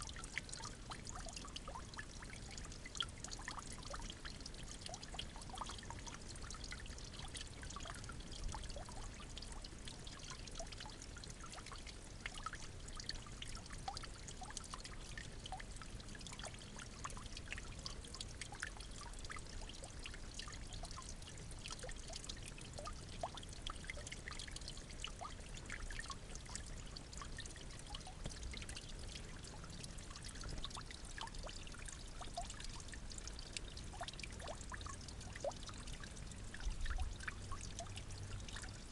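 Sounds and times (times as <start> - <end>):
water drips and splashes: 0.0 - 38.9
water trickling: 0.0 - 38.9.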